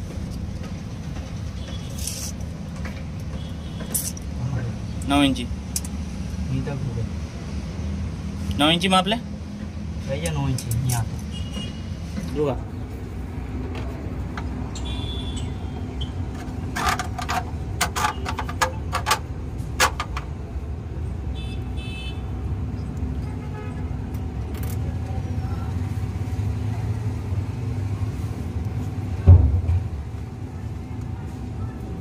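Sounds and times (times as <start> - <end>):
loud knock: 29.2 - 29.9.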